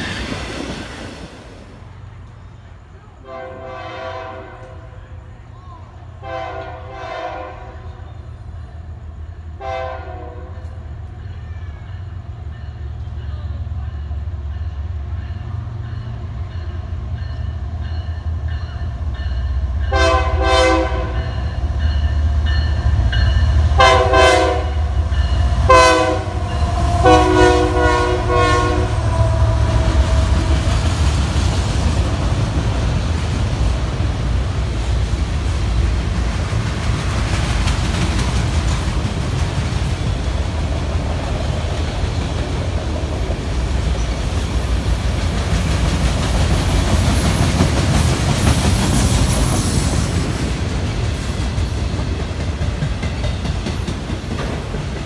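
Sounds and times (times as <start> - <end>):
locomotive air horn blasts: 3.2 - 5.0, 6.2 - 8.0, 9.6 - 10.6, 19.9 - 21.4, 23.8 - 25.0, 25.6 - 31.0.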